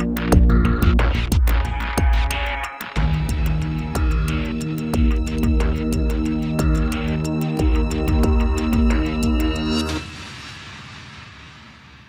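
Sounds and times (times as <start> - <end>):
hi-hat ticks: 0.0 - 10.0
held synth chords: 0.0 - 10.1
kick drum: 0.3 - 9.6.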